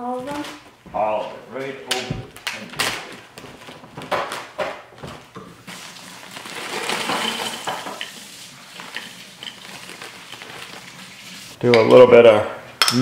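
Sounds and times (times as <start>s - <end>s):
plastic bag rustling: 2.3s - 11.6s.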